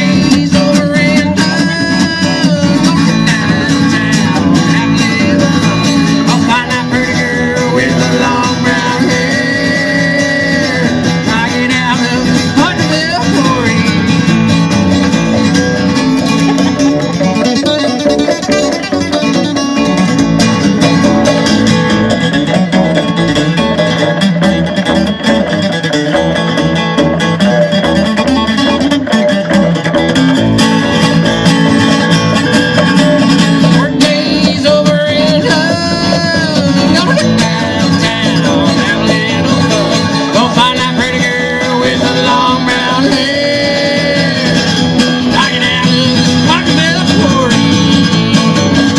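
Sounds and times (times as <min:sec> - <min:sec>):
man singing: 0:00.0 - 0:19.6, 0:31.0 - 0:48.9
plucked upright bass: 0:00.0 - 0:48.9
strummed acoustic guitar: 0:00.0 - 0:48.9.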